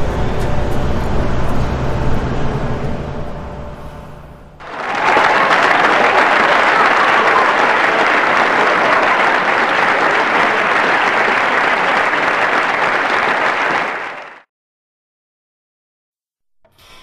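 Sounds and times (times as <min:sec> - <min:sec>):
audience applause: 0:04.6 - 0:14.5.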